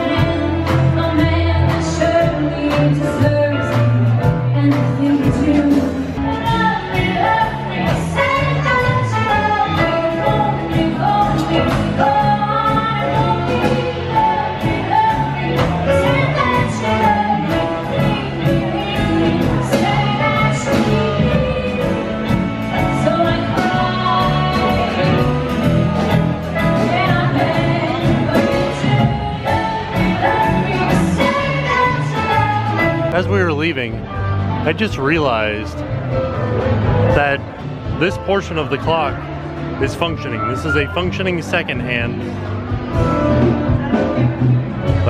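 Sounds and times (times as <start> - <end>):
woman singing lead: 0.0 - 33.1.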